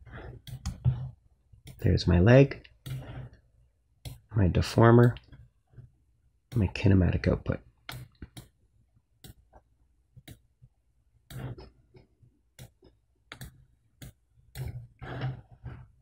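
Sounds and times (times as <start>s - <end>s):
computer mouse clicking: 12.6s - 14.7s.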